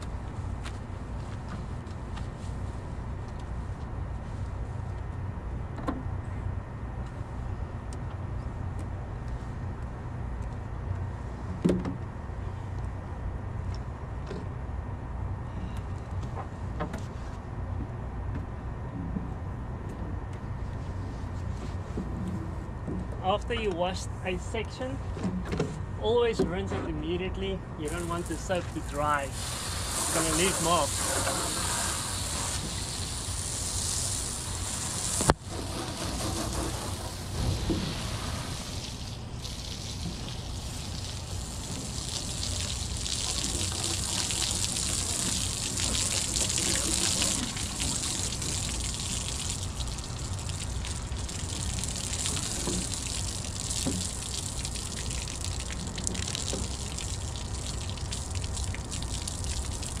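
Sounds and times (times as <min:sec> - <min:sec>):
hose water spraying and splashing: 0:27.8 - 1:00.0.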